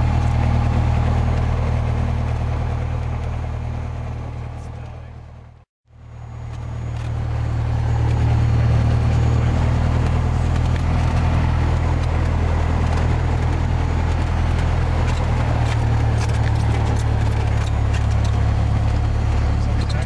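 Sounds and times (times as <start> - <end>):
aircraft piston engine drone: 5.9 - 20.0.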